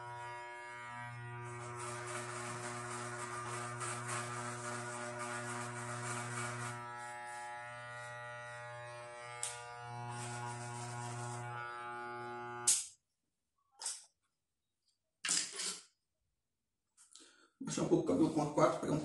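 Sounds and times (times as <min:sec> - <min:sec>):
electric hair clipper buzzing: 0:00.0 - 0:12.9
clipper blades cutting hair: 0:01.8 - 0:12.9.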